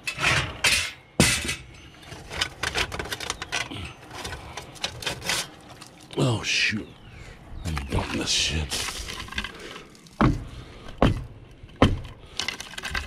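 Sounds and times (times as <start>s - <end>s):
sharp metal clank: 0.0s - 2.0s
metal bucket scraping: 0.0s - 6.2s, 7.9s - 10.2s.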